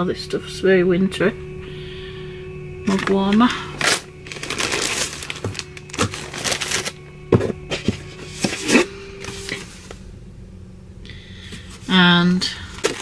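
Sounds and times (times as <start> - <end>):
plastic packaging crinkling: 2.9 - 7.0, 12.5 - 13.0.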